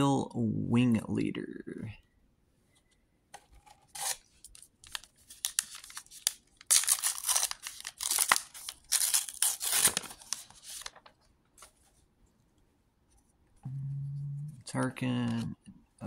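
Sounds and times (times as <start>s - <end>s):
paper wrapper tearing and crinkling: 3.8s - 11.7s.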